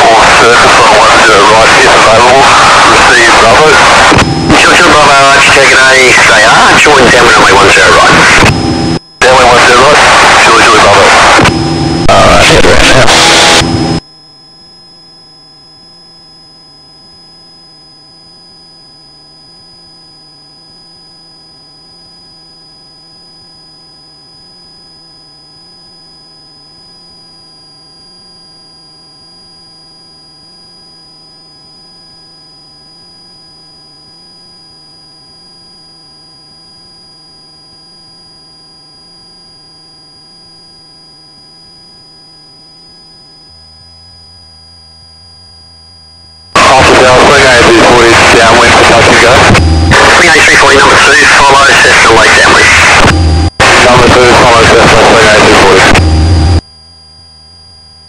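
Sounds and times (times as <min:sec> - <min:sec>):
loud burst of noise: 0:00.0 - 0:14.0, 0:46.4 - 0:56.6
steady electronic whine: 0:00.0 - 0:58.0
low wavering hum: 0:37.8 - 0:46.6, 0:56.0 - 0:58.0.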